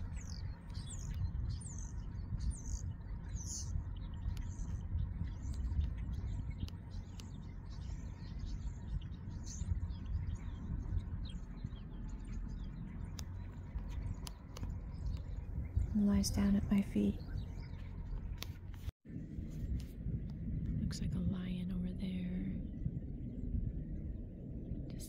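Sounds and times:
small birds chirping: 0.0 - 18.9
low rumble: 0.0 - 25.0.

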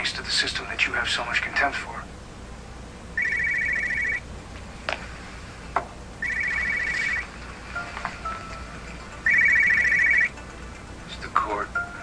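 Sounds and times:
mobile phone ringing: 3.2 - 4.3, 6.2 - 10.9.

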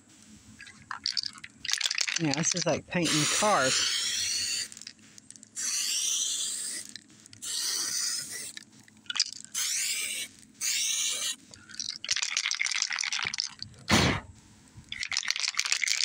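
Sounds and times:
aerosol can spraying: 2.2 - 4.9, 5.6 - 8.6, 9.5 - 11.4.

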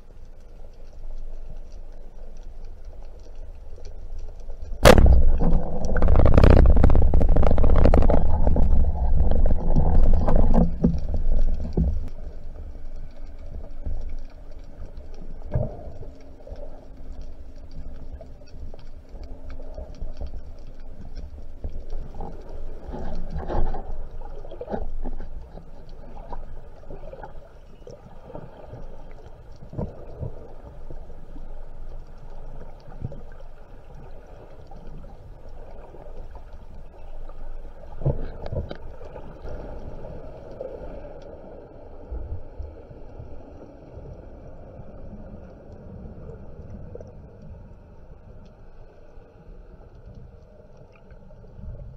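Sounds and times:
small clicks: 0.0 - 39.8
muffled underwater rumble: 0.0 - 51.9.

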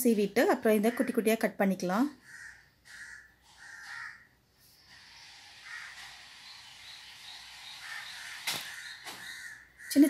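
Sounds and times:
crows cawing: 2.2 - 4.4, 5.2 - 6.3, 7.6 - 10.0.

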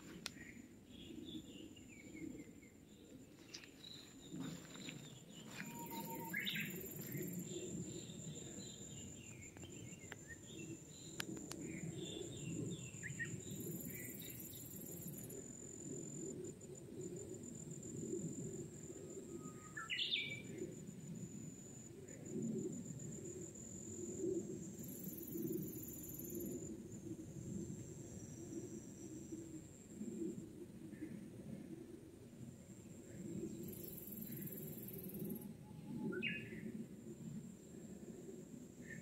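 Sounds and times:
insect pulsing trill: 0.1 - 31.2, 32.8 - 37.0
bird call rising in pitch: 5.6 - 6.8.

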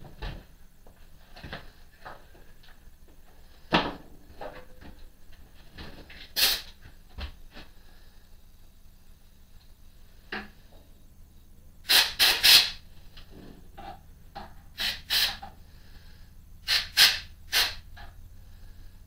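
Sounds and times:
compressed air blow gun blasts: 6.3 - 6.8, 11.8 - 12.8, 14.8 - 15.5, 16.6 - 18.1.

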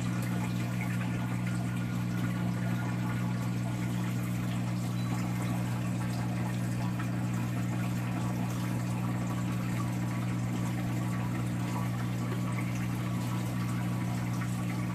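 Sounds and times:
aquarium pumps humming: 0.0 - 14.9
circulating water: 0.0 - 14.9.

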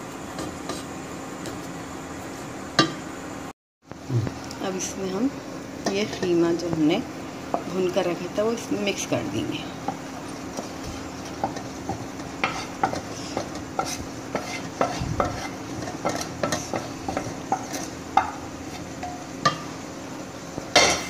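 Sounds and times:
sauce sizzling: 4.3 - 21.0
wooden spoon scraping a bowl: 10.6 - 18.0.

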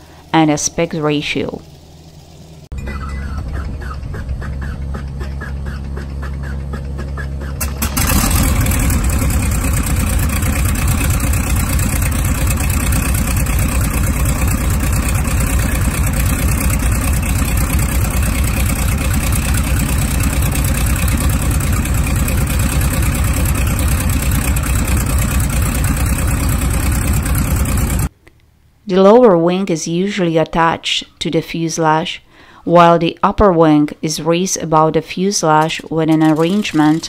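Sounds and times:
radial engine starting and running: 0.0 - 28.1, 34.9 - 37.0
engine cranking: 1.6 - 28.1, 35.4 - 37.0.

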